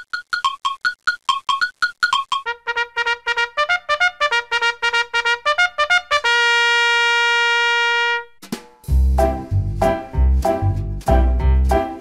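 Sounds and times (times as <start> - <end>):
intro music: 8.4 - 12.0.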